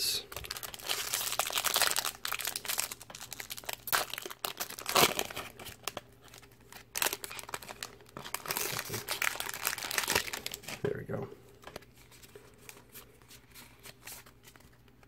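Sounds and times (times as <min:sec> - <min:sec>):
foil wrapper crinkling and tearing: 0:00.3 - 0:10.8.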